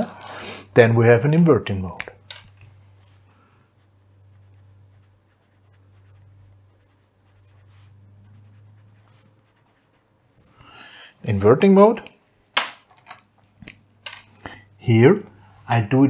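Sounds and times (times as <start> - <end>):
pen scratching on paper: 3.6 - 10.4.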